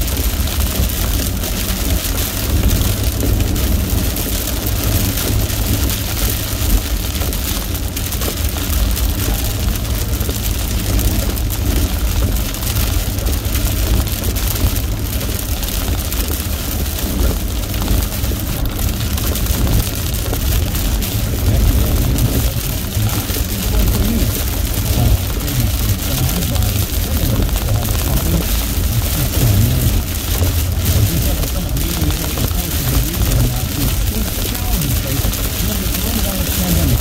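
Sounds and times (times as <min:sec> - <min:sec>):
low road rumble: 0:00.0 - 0:37.0
rain and tyre spray hiss: 0:00.0 - 0:37.0.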